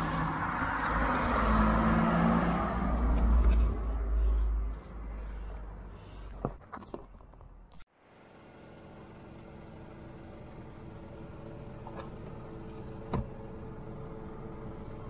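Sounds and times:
vehicle passing: 0.0s - 6.3s.

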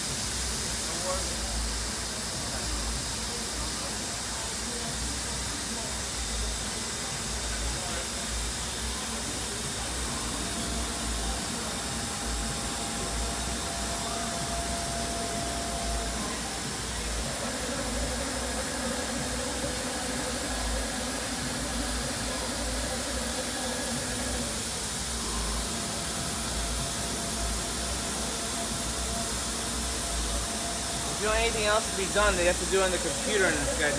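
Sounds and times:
router spindle hissing: 4.6s - 33.9s
high whine: 8.2s - 33.9s.

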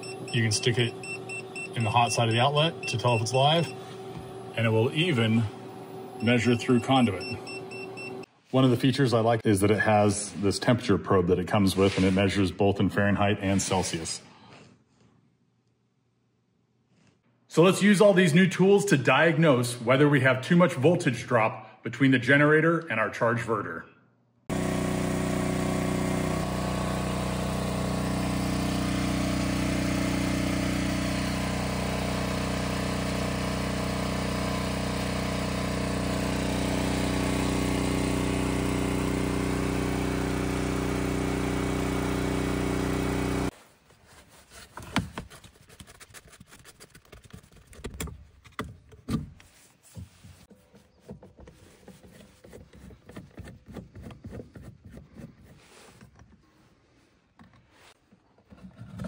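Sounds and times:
generator engine running: 0.0s - 8.3s, 24.5s - 43.5s.

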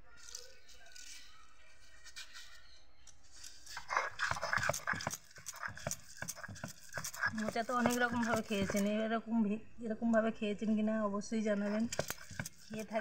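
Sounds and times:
stone roller grinding: 3.4s - 9.0s, 11.6s - 13.0s
wet squishing: 3.7s - 9.0s, 11.7s - 13.0s.

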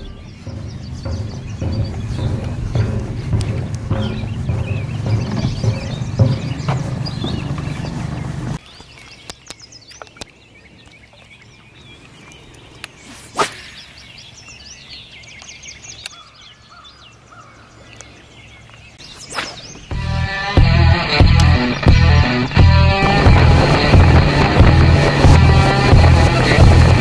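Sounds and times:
songbirds chirping: 0.0s - 27.0s
fishing rod swishing: 12.9s - 14.1s, 19.0s - 19.9s
music with a beat: 19.9s - 27.0s.

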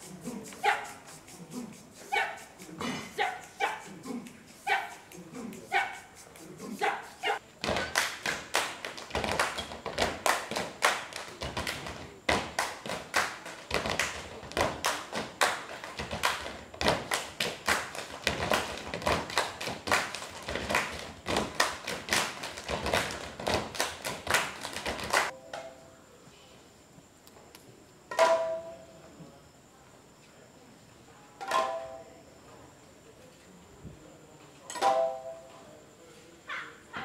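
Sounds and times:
foot stamps: 7.6s - 25.3s
hand claps: 7.6s - 25.3s.

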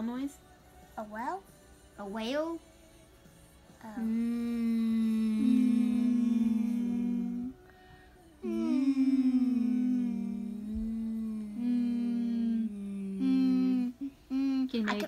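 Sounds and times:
children imitating whale call: 8.4s - 14.7s.

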